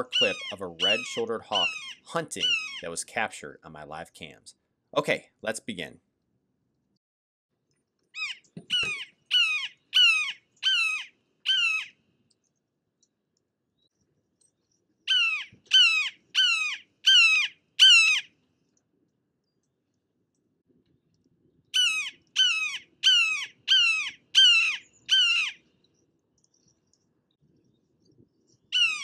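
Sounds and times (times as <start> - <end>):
hawk calling: 0.0 - 3.0, 8.2 - 11.9, 15.1 - 18.3, 21.8 - 25.6, 28.7 - 29.0.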